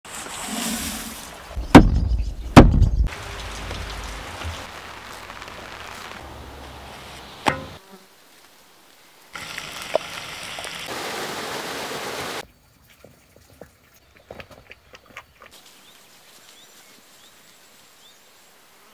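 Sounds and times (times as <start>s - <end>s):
dry grain pouring: 0.1s - 1.3s, 9.4s - 11.0s
heavy thuds: 1.6s - 4.7s
sharp knock: 1.7s - 3.1s, 7.4s - 7.8s.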